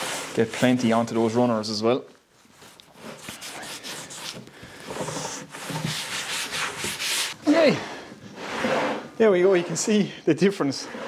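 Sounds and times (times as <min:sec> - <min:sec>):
cloth rubbing wax on wood: 0:02.5 - 0:07.8.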